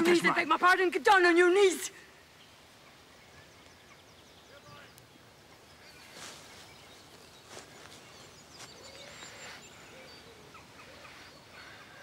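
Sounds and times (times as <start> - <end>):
small birds chirping: 0.0 - 12.0
soft rustle: 5.8 - 9.6.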